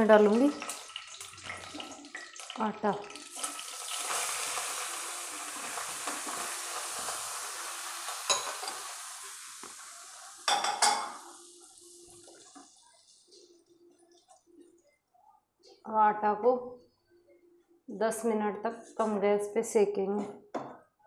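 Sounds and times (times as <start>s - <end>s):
ghee sizzling in pan: 0.2s - 12.8s.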